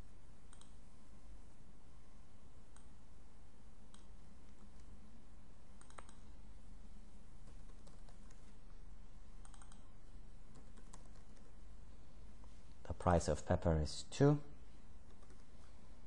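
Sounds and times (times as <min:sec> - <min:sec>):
faint steady hum: 0:00.0 - 0:16.0
computer keyboard typing: 0:05.8 - 0:06.2, 0:07.4 - 0:08.6, 0:09.4 - 0:09.9, 0:10.5 - 0:11.6, 0:15.0 - 0:15.6.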